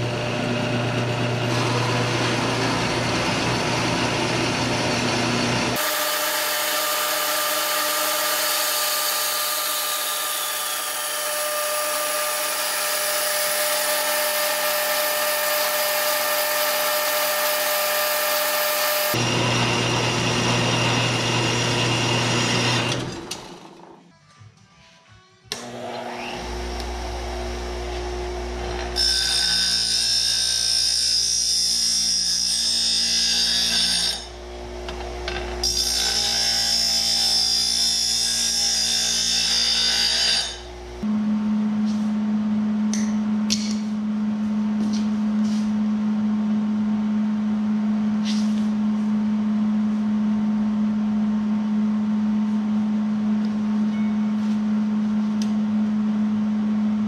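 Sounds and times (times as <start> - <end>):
bench grinder grinding steel: 0.0 - 23.8, 31.2 - 41.1
steady low hum: 40.7 - 57.0.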